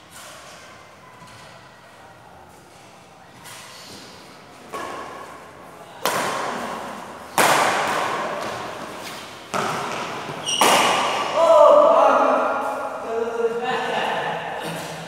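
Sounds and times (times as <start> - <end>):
rackets striking shuttlecock: 7.3 - 8.7, 9.5 - 11.4.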